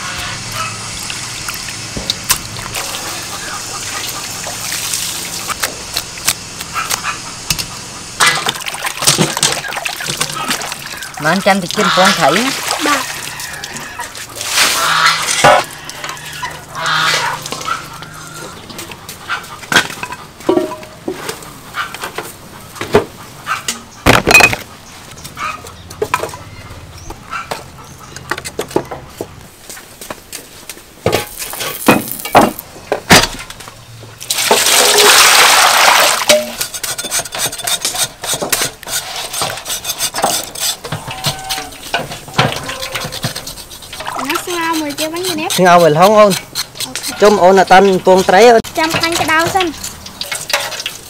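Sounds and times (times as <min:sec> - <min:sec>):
metal wok clanking: 0:19.8 - 0:21.2, 0:36.2 - 0:51.0
wood clattering into metal stove: 0:48.8 - 0:51.0.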